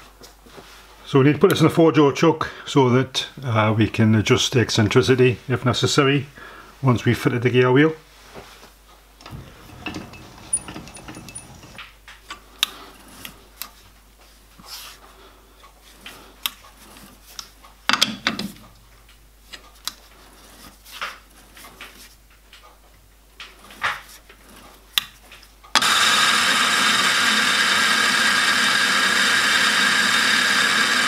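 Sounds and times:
metallic clicks of lathe chuck: 0:09.3 - 0:11.8.

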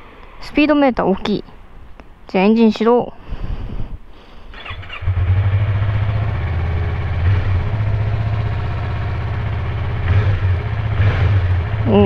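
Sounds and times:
motorcycle engine starting and idling: 0:04.5 - 0:12.0.

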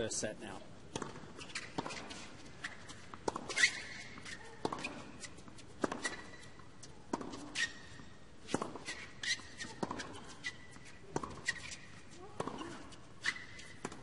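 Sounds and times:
tennis ball struck by rackets: 0:00.9 - 0:05.2, 0:05.8 - 0:06.4, 0:08.5 - 0:11.7.

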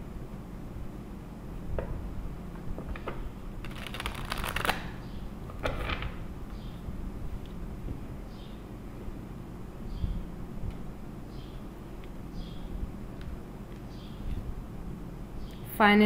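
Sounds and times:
steady low hum: 0:00.0 - 0:16.0
cards being riffle shuffled: 0:03.6 - 0:05.0.

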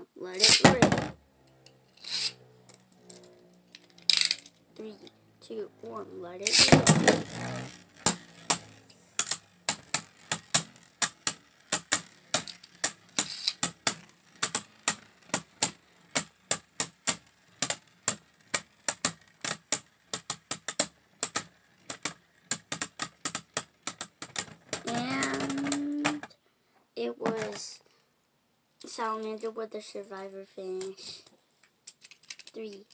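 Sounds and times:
spinning tops clacking: 0:00.4 - 0:01.0, 0:02.0 - 0:02.4, 0:04.0 - 0:04.5, 0:06.4 - 0:26.2.

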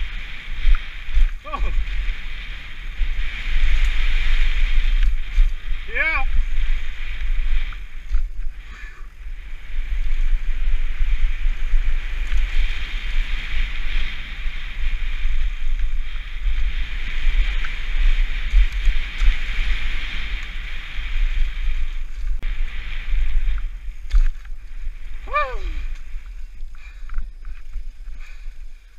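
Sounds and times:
wind buffeting microphone: 0:00.0 - 0:28.9.

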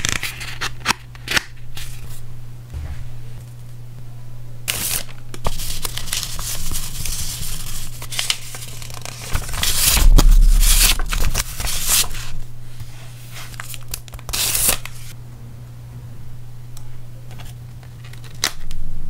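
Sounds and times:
steady low hum: 0:02.3 - 0:04.6, 0:09.8 - 0:12.7
low bump: 0:02.7 - 0:03.4, 0:10.0 - 0:12.0
paper rustling and crinkling: 0:04.7 - 0:10.0.

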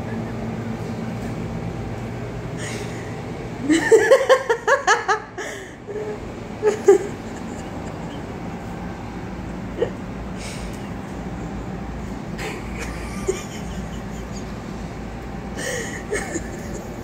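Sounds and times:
person laughing: 0:00.0 - 0:01.0, 0:02.6 - 0:08.7, 0:09.7 - 0:10.0, 0:12.4 - 0:14.9, 0:15.6 - 0:17.0.

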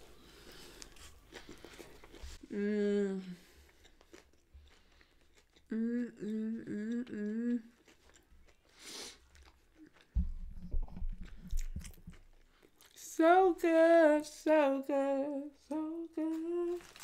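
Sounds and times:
chewing: 0:00.3 - 0:02.4, 0:03.5 - 0:10.3, 0:10.9 - 0:13.0
woman humming with mouth full: 0:02.4 - 0:03.4, 0:05.7 - 0:07.7, 0:14.7 - 0:16.9.

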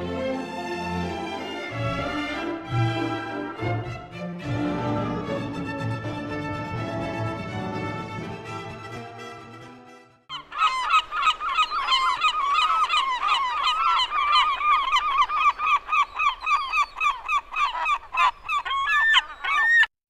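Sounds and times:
gulls calling: 0:10.3 - 0:19.9.

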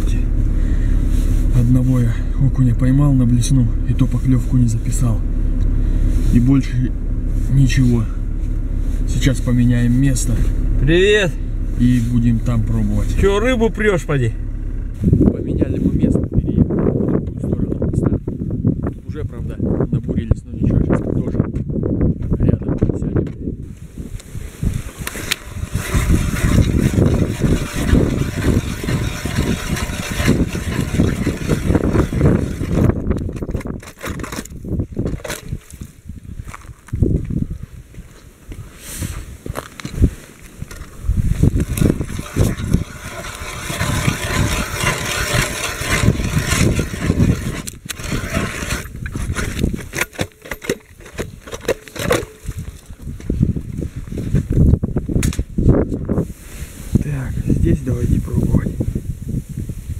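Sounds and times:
ice auger grinding through ice: 0:00.0 - 0:15.3, 0:24.6 - 0:35.9, 0:40.7 - 0:53.1.

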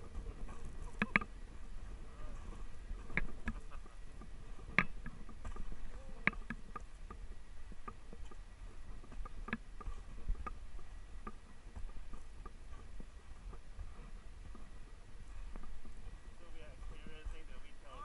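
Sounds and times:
low steady rumble: 0:00.0 - 0:18.0
sled knocks and creaks: 0:00.0 - 0:18.0.

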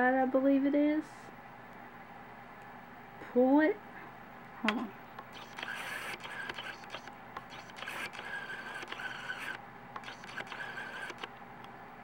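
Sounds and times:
small clicks: 0:05.2 - 0:11.4.

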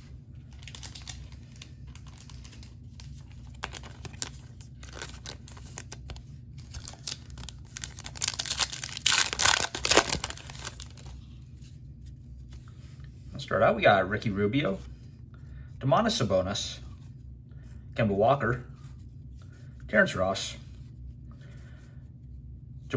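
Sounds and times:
foil wrapper tearing and crinkling: 0:00.5 - 0:11.2.

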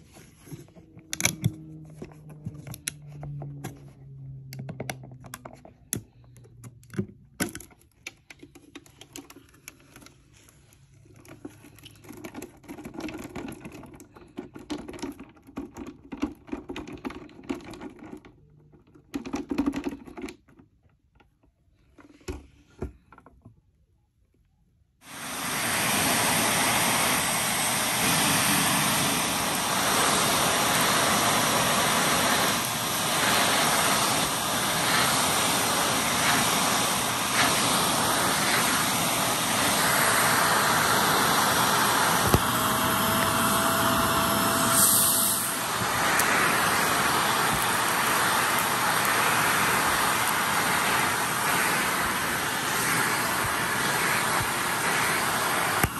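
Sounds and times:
upright vacuum cleaner running: 0:00.0 - 0:06.2, 0:25.0 - 0:55.9
light handling clicks and rustles: 0:04.6 - 0:23.6.

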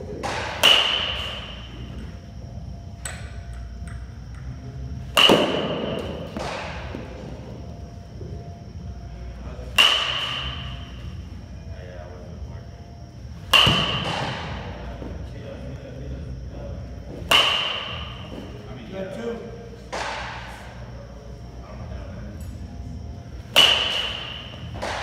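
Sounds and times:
metal bat pinging balls: 0:00.2 - 0:01.7, 0:02.9 - 0:06.9, 0:09.8 - 0:11.0, 0:13.4 - 0:14.6, 0:17.3 - 0:18.3, 0:23.5 - 0:25.0.

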